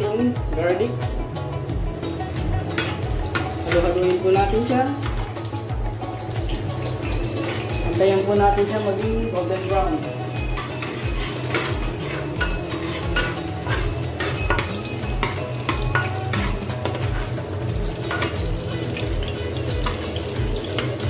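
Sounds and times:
garlic sizzling in oil: 0:00.0 - 0:21.0
metal spatula scraping pan: 0:06.2 - 0:21.0.

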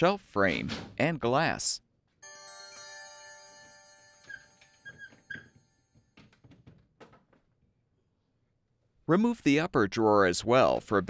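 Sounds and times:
glass shelf ringing: 0:03.1 - 0:06.2
plastic shelf squeaking and clicking: 0:04.3 - 0:07.4.

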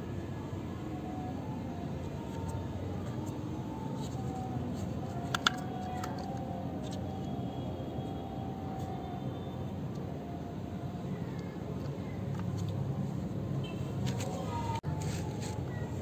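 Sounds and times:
plastic toy parts clicking: 0:04.8 - 0:07.0.

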